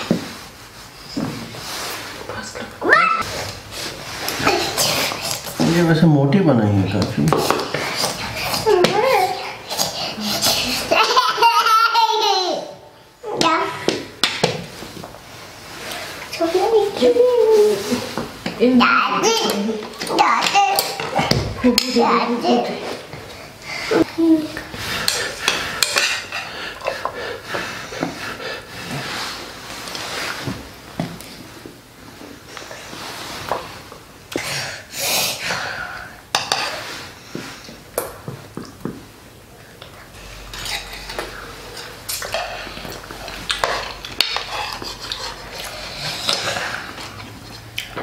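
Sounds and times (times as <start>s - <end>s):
spoons clinking against plates: 25.0s - 27.1s.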